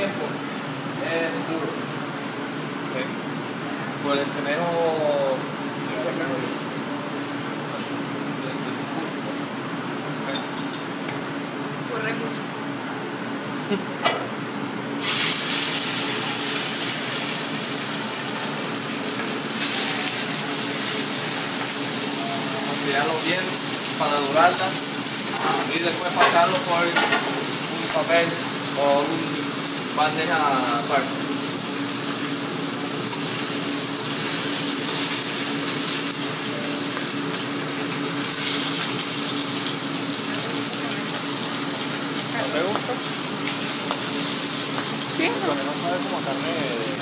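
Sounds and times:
meat sizzling in a frying pan: 15.0 - 47.0.

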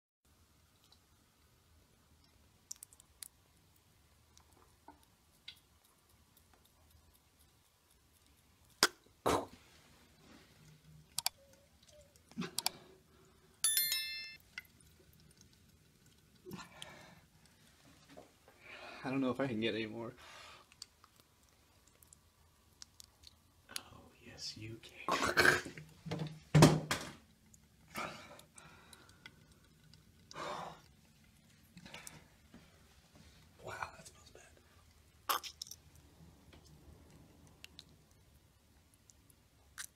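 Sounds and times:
bright electronic chime: 13.6 - 14.4
person exhaling: 30.4 - 30.8.

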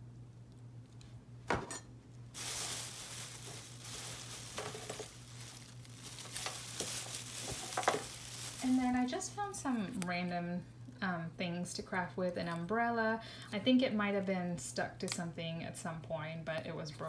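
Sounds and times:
crinkling rustle: 2.1 - 10.4.

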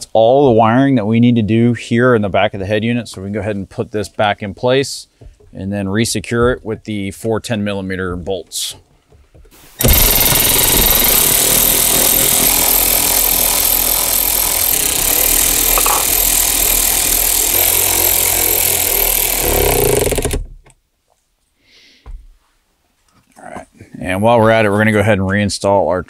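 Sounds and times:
cordless electric ratchet running: 9.8 - 20.5.

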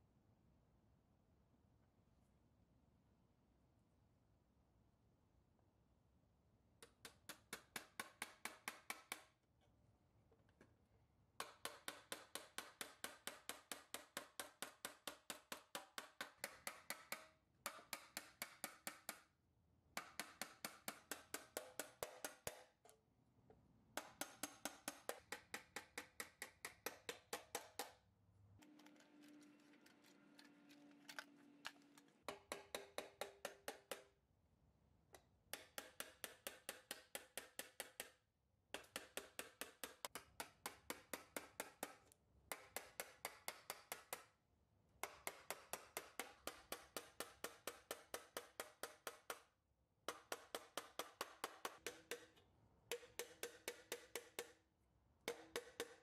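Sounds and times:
hammer tapping nails into metal: 6.8 - 9.3, 11.4 - 19.3, 20.0 - 23.0, 24.0 - 28.0, 31.1 - 34.2, 35.5 - 44.4, 45.0 - 49.5, 50.1 - 54.6, 55.3 - 56.0.

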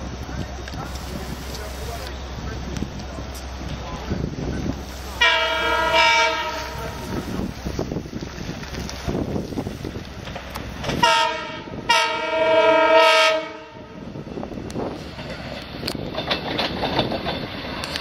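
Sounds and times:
train rumbling: 0.0 - 18.0
train horn blasts: 5.2 - 7.2, 11.0 - 14.0.

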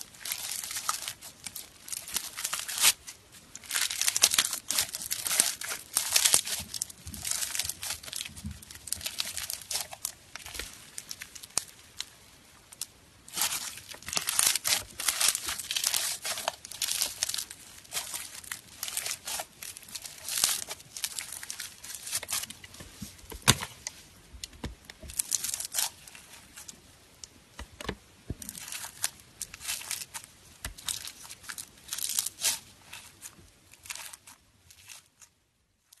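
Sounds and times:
crunchy slime crackling and popping: 0.0 - 36.0.

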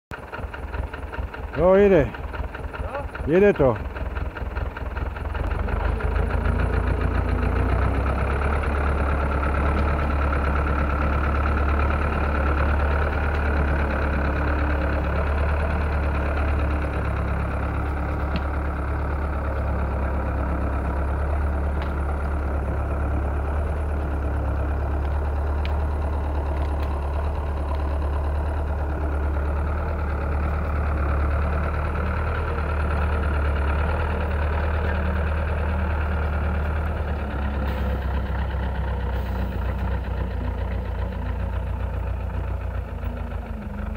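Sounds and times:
tractor engine running: 0.1 - 43.9
faint clicks: 25.0 - 25.8, 26.5 - 27.0.

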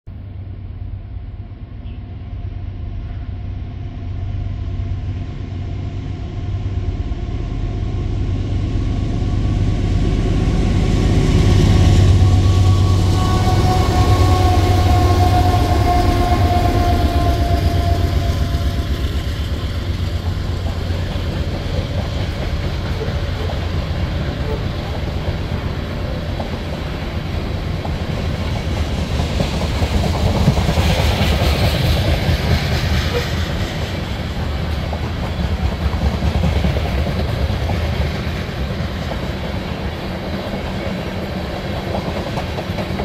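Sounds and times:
locomotive engine rumble: 0.1 - 43.0
train cars clacking on rails: 12.0 - 43.0.

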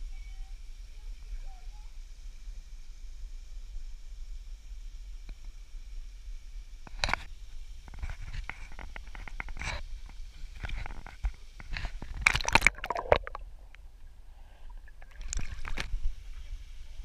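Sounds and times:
water splashing and lapping: 7.9 - 13.7, 14.6 - 16.5
man swimming splashes: 12.2 - 13.5.

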